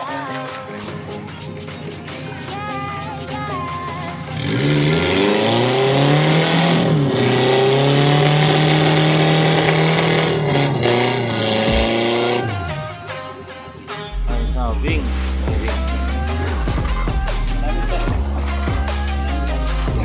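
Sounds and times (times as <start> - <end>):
car engine revving hard: 4.1 - 12.9.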